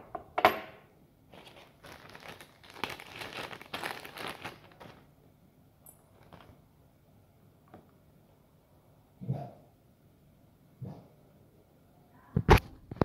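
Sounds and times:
packaging crinkling and rustling: 1.3 - 5.2, 6.0 - 6.7.

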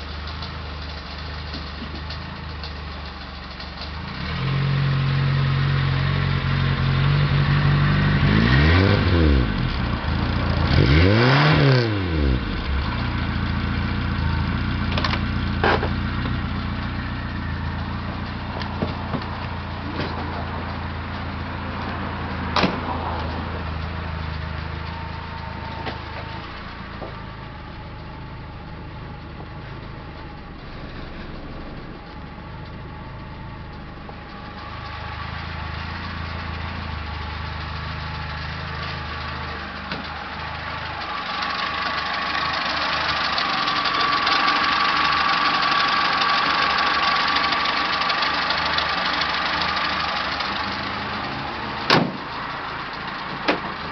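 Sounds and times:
car engine idling: 0.0 - 53.9
car door shutting: 22.6 - 23.0, 51.9 - 52.3.

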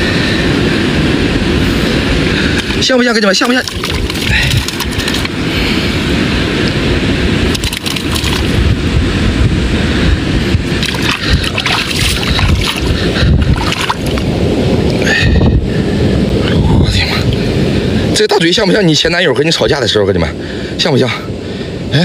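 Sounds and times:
wind on microphone: 0.0 - 22.0
water splashes: 1.6 - 9.1, 9.9 - 14.9
water washing over rocks: 1.6 - 9.1, 10.4 - 15.1.

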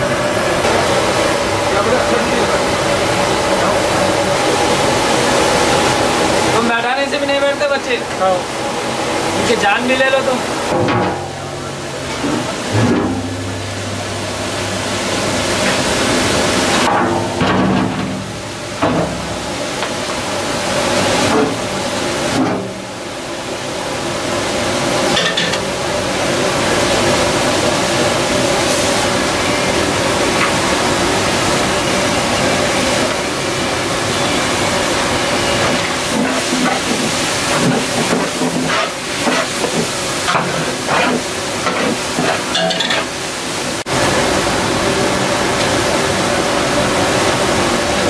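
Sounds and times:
food sizzling in hot oil: 24.5 - 43.6.

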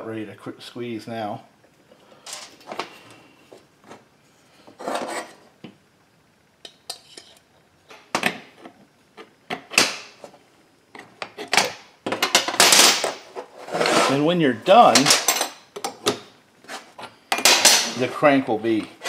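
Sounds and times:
metal parts clinking on workbench: 14.8 - 15.7.

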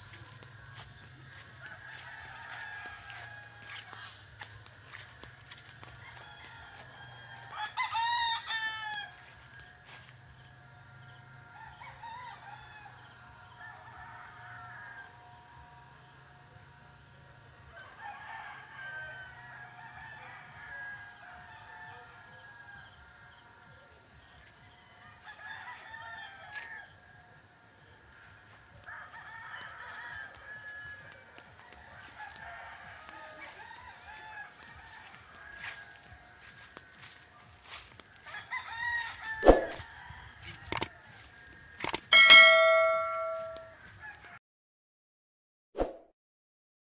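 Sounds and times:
roosters crowing: 0.0 - 4.2, 4.9 - 10.1, 25.1 - 27.0, 28.8 - 44.3.

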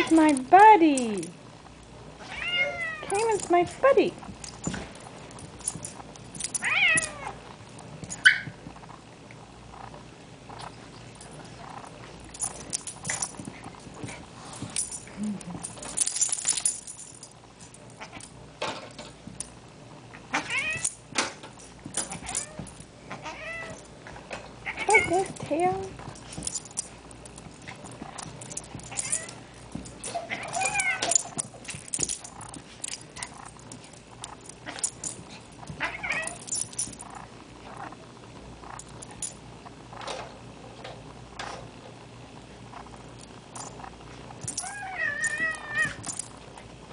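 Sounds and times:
paws scuffling on carpet: 10.5 - 15.2, 21.7 - 38.0
jingling: 12.2 - 18.3, 24.7 - 37.2.

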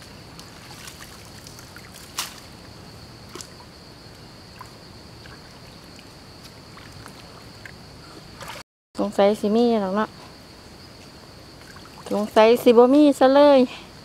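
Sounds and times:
stream water splashing: 0.0 - 3.7, 4.4 - 8.6, 11.5 - 12.8.

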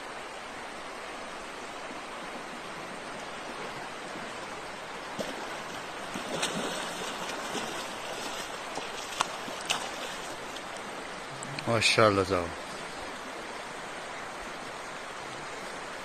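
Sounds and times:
flowing river: 0.0 - 16.0
fish thrashing and splashing: 6.1 - 10.5.

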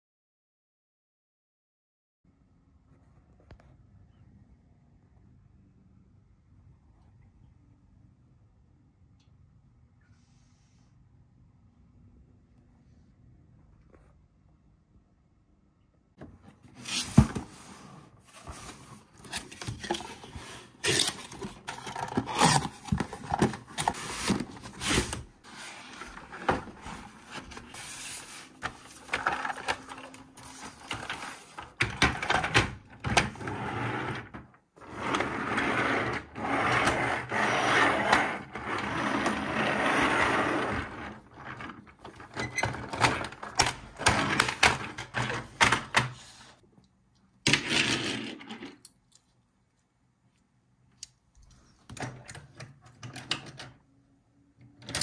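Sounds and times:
cardboard packaging rustling: 16.7 - 31.8.

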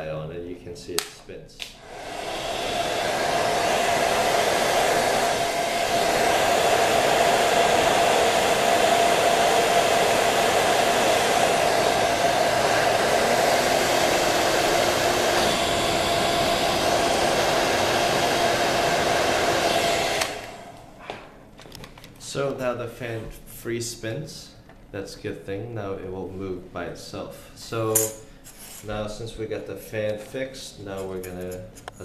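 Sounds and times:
hair dryer running: 1.7 - 21.3
laptop blower fan spinning: 1.8 - 21.0.

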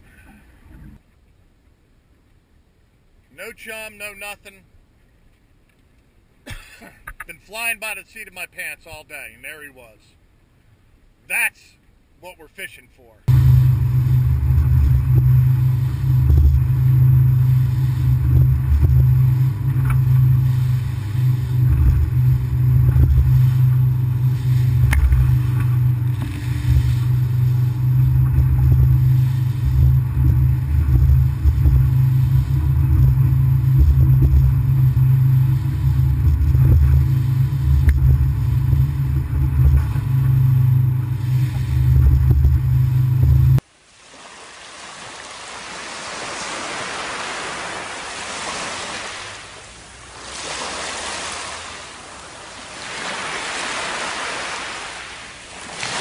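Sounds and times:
boat hull rumbling on chop: 13.3 - 43.6
outboard motor drone: 13.3 - 56.0.

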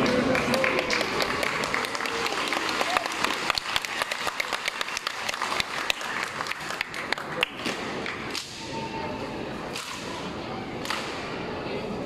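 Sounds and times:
crowd clapping: 0.0 - 8.3
crowd murmur: 0.0 - 12.0.

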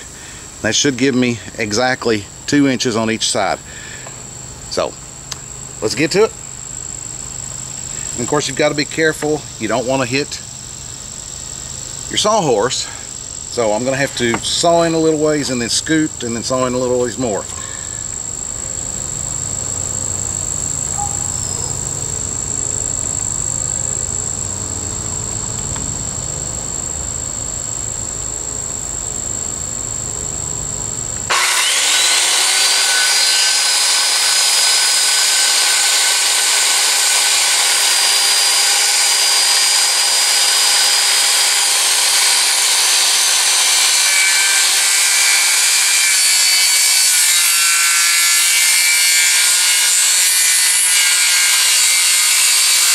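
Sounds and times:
high insect trill: 0.0 - 52.9
circular saw ripping wood: 31.3 - 52.9.

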